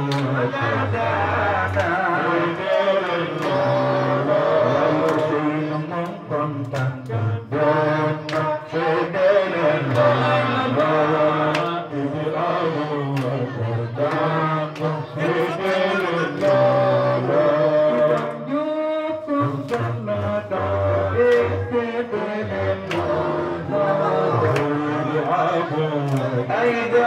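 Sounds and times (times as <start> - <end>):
hand claps: 0.0 - 0.4, 1.7 - 4.1, 5.0 - 7.2, 8.2 - 8.6, 9.8 - 11.9, 13.0 - 16.8, 17.9 - 18.5, 19.4 - 20.4, 21.2 - 21.6, 22.8 - 24.9, 26.0 - 26.8
men chanting through loudspeaker: 0.0 - 27.0.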